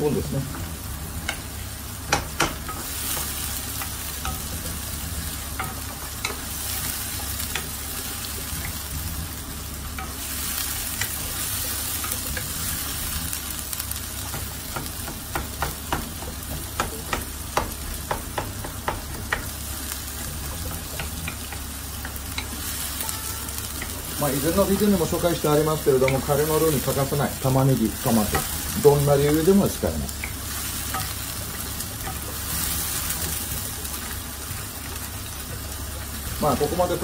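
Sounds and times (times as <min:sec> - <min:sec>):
onion sizzling in a frying pan: 0:00.0 - 0:37.0
spatula knocking and scraping pan: 0:01.2 - 0:07.8, 0:14.2 - 0:23.0.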